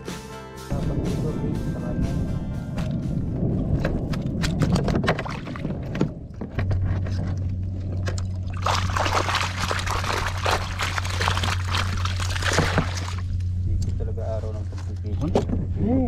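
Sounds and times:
steady low hum: 0.7 - 16.0
water pouring off a net: 8.5 - 13.3.

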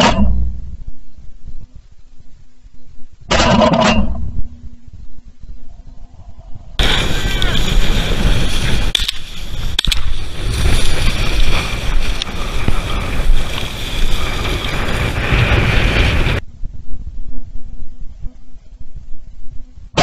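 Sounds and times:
wind buffeting microphone: 4.2 - 20.0
sharp clicks: 8.9 - 10.2.

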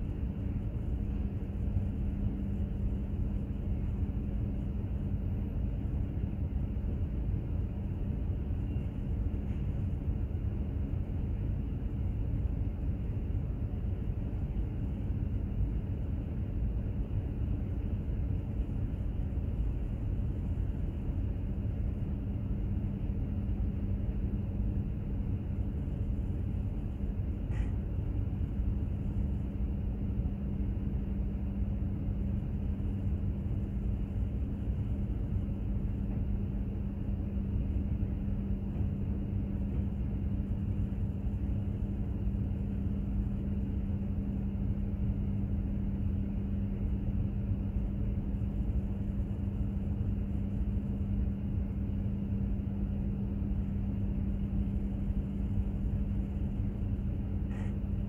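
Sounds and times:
constant low hum: 0.0 - 58.0.

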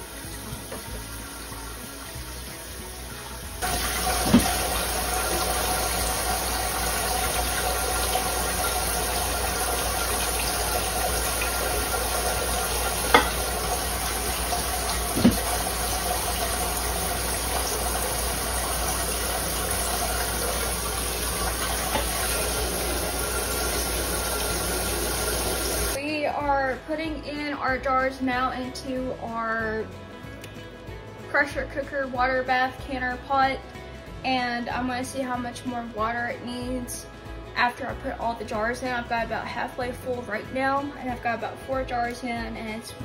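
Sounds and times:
water running into pot: 0.0 - 26.0.

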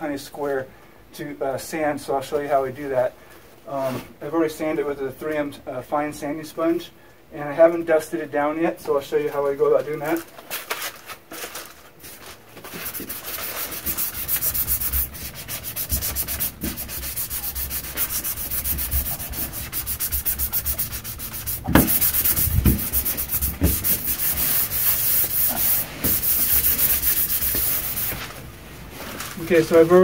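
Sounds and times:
sanding sponge rubbing metal door: 12.7 - 28.3.

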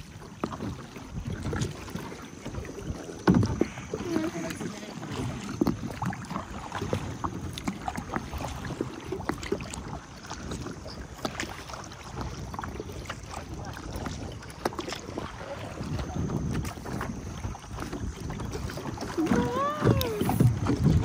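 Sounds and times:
small splashes and drips: 0.0 - 16.0
paddle strokes splashing water: 0.0 - 21.0
wind rumble on microphone: 0.0 - 21.0.

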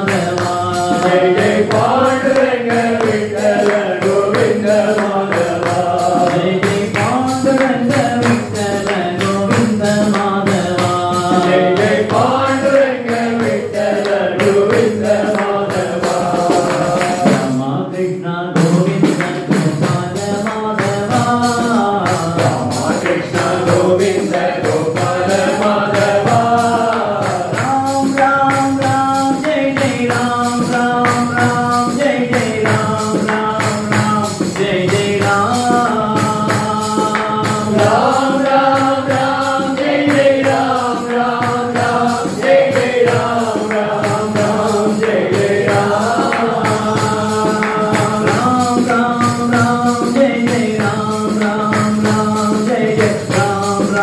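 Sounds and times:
devotional song melody: 0.0 - 54.0
jingling hand percussion: 0.0 - 54.0.

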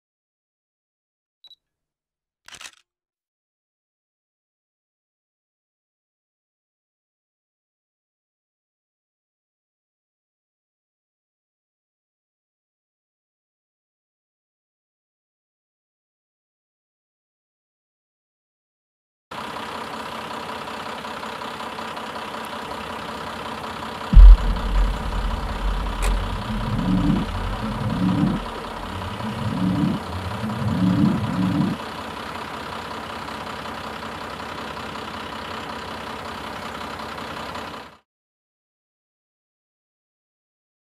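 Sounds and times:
vehicle engine starting and revving: 24.2 - 31.8.

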